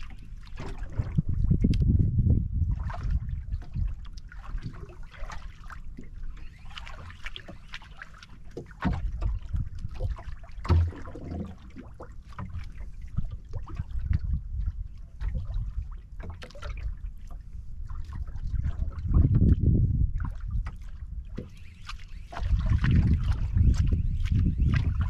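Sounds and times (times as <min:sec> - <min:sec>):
water lapping against boat hull: 0:00.0 - 0:25.0
knocks on boat: 0:00.5 - 0:01.3, 0:08.5 - 0:09.5, 0:10.6 - 0:11.7
low rumble: 0:00.8 - 0:03.6.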